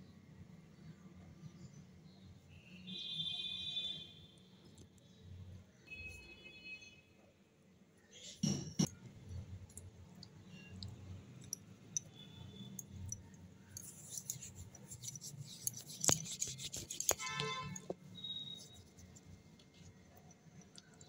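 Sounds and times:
hands rolling clay: 12.8 - 21.0.

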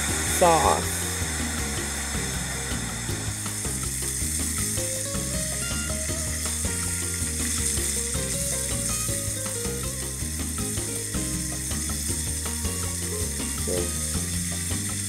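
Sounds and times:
background music: 0.0 - 15.0
meat sizzling in a pot: 0.0 - 15.0.

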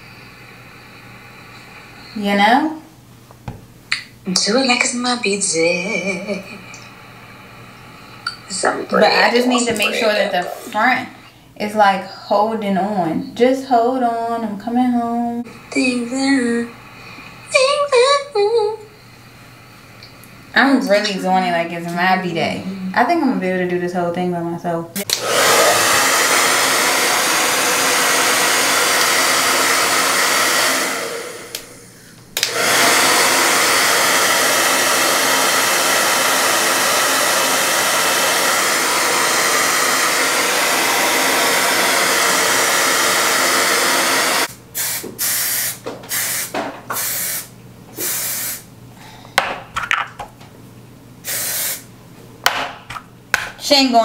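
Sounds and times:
hair dryer blowing: 4.9 - 11.1, 15.4 - 22.1, 25.0 - 48.7, 51.2 - 51.9.

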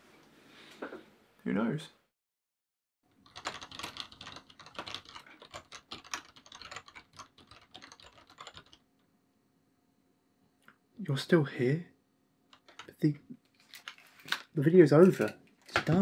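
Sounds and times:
fast typing on keyboard: 3.1 - 8.9, 12.5 - 13.0.

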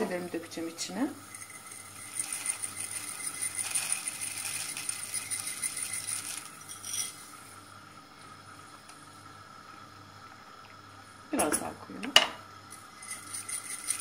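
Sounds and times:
dry noodles rattling into pot: 0.9 - 7.4, 12.8 - 14.0.

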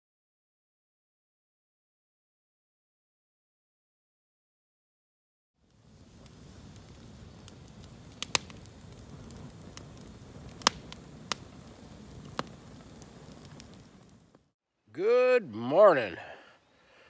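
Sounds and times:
campfire hissing and popping: 5.6 - 17.0.

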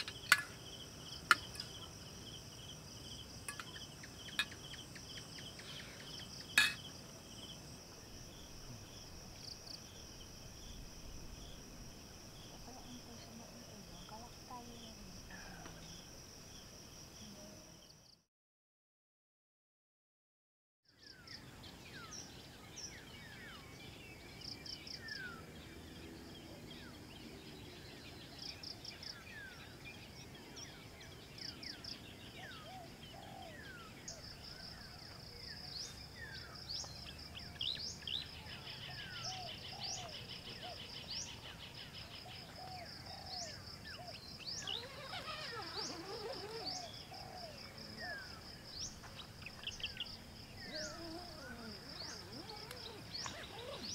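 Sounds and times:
small birds chirping: 0.0 - 9.9, 20.9 - 53.9
high insect trill: 0.0 - 17.8, 28.0 - 53.9.

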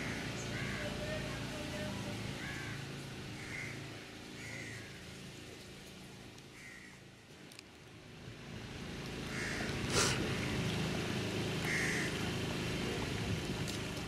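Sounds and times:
low engine hum: 0.0 - 14.0.

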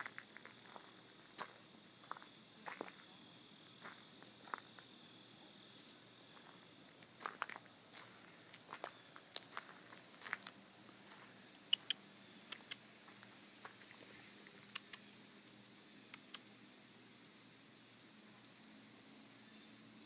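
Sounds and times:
footsteps crunching on gravelly dirt: 0.0 - 5.0, 6.3 - 12.0, 12.6 - 14.3
faint high-pitched insect drone: 0.0 - 20.0.

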